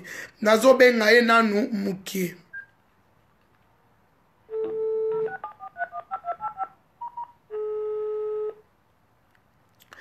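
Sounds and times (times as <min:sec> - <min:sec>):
phone dial tone: 0:04.5 - 0:08.6
short phone beeps: 0:04.5 - 0:08.6
keypad dialing beeps: 0:04.6 - 0:07.4.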